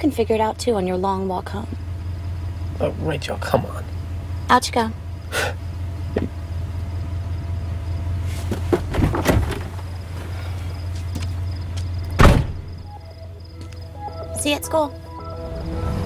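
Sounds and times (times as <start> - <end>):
car engine idling: 0.0 - 16.0
clunks and rustling: 8.1 - 12.9
car door slamming: 8.5 - 10.0, 12.0 - 12.8.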